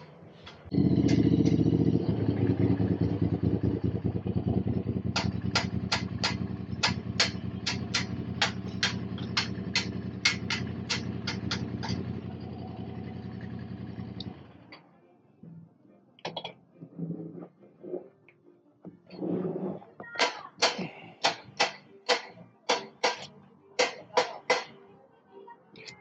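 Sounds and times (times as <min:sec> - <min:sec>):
motorcycle engine idling: 0:00.0 - 0:14.8.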